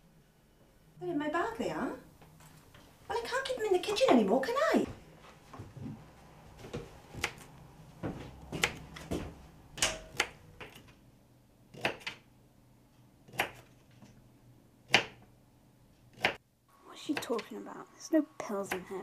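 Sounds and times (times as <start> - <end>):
knife chopping on cutting board: 11.7 - 12.2, 13.3 - 13.7, 14.9 - 15.2.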